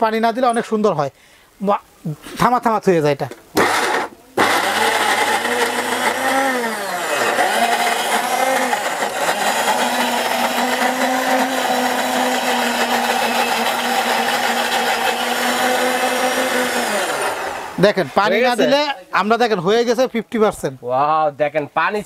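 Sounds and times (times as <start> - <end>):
mixer grinder motor grinding: 3.6 - 17.8.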